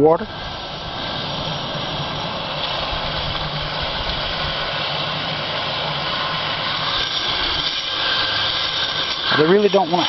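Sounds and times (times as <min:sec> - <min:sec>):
hose nozzle spraying water: 0:01.1 - 0:10.0.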